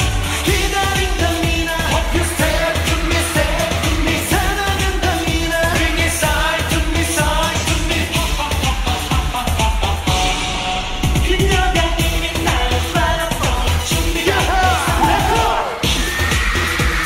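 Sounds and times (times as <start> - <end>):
pop dance track: 0.0 - 17.0
male group singing: 0.3 - 10.1, 11.2 - 15.9.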